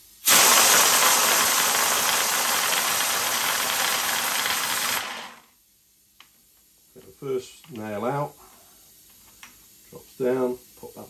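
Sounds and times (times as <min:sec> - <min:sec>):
compressed air hissing: 0:00.0 - 0:05.4
balls churning in plastic bottle: 0:00.4 - 0:05.3.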